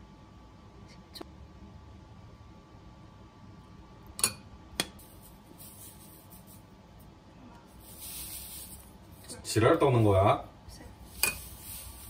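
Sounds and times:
spoon scooping sugar: 5.0 - 6.7, 7.6 - 10.3, 11.0 - 12.0
metal spoon clinking glass bowl: 11.1 - 11.7.

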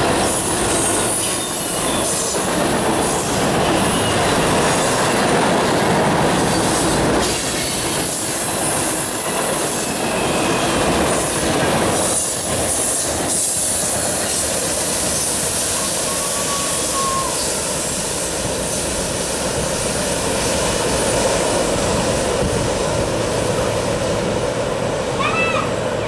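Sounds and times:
train wheels rumbling on rails: 0.0 - 26.0
faint wheel squeal: 15.7 - 17.6.

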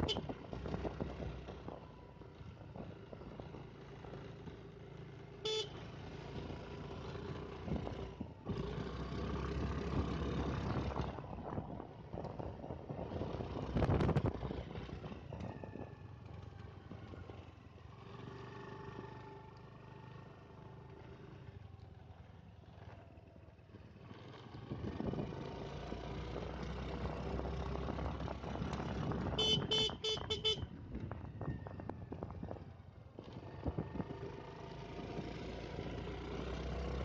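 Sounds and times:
short horn toot: 5.4 - 5.8, 29.4 - 30.7
wind on microphone: 10.0 - 16.0
motorcycle engine running: 28.0 - 34.2.

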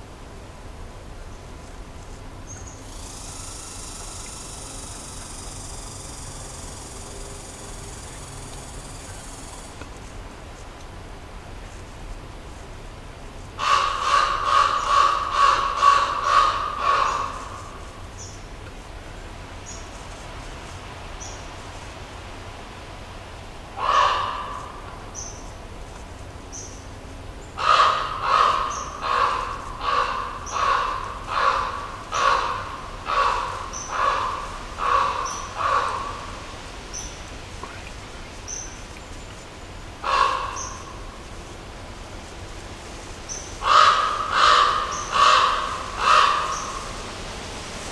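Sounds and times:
crow cawing: 13.6 - 17.6, 23.8 - 24.9, 27.6 - 36.3, 40.0 - 41.0, 43.6 - 46.9.

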